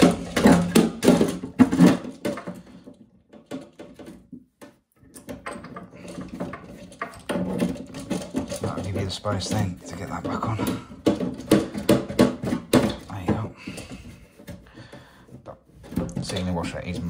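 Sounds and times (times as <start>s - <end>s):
plastic clicks and scrapes: 0.0s - 17.0s
plastic valve knocks and rubs: 0.0s - 17.0s.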